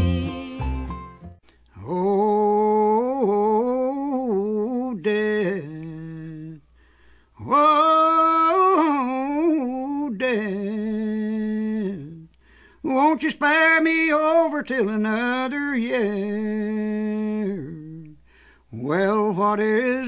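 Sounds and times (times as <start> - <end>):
man singing unaccompanied: 0.0 - 1.0, 1.8 - 6.7, 7.4 - 20.0
guitar-backed country song: 0.0 - 1.4.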